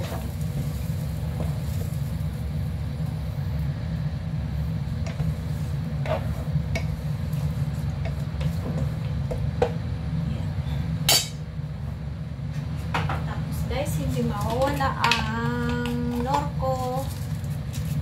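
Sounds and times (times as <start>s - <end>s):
steady low rumble: 0.0s - 18.0s
spatula knocking and scraping pan: 6.0s - 7.0s.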